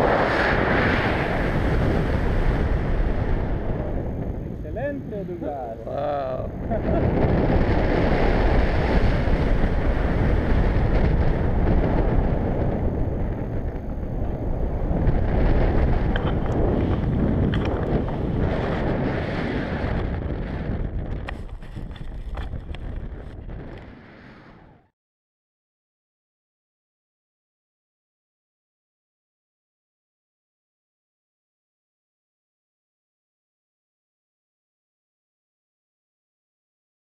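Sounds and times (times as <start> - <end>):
wind rushing over microphone: 0.0 - 24.9.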